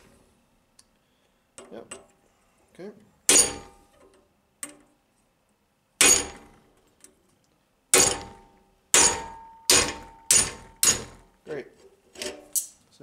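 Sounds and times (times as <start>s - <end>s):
hammer striking steel: 3.3s - 3.8s, 6.0s - 6.6s, 7.9s - 11.3s.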